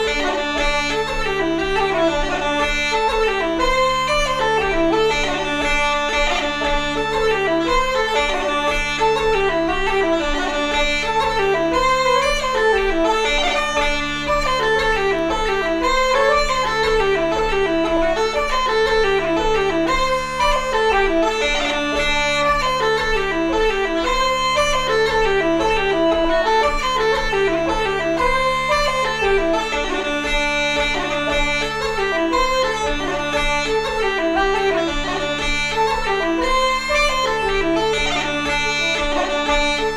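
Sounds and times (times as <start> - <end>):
bagpipes with drone: 0.0 - 39.9
low accompanying tone: 0.0 - 39.9
wooden flute playing jig: 0.0 - 39.9.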